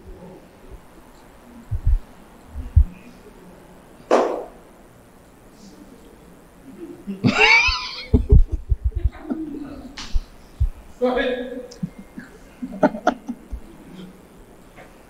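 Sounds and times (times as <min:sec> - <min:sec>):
low thumps: 0:01.7 - 0:03.0, 0:08.2 - 0:09.3, 0:10.0 - 0:11.0.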